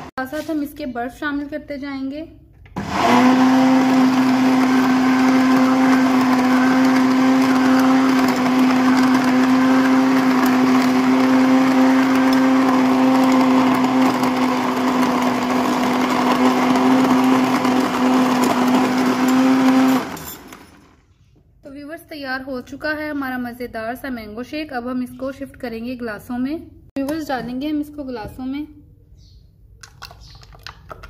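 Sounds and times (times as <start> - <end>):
electric blender motor running: 2.8 - 21.0.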